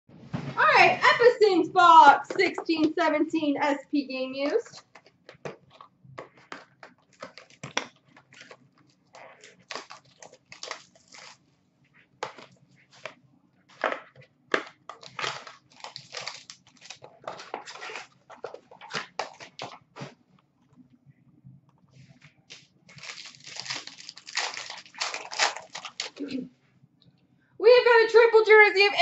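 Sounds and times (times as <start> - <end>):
plastic wrap crinkling: 4.4 - 11.5, 12.2 - 20.8, 22.0 - 26.4.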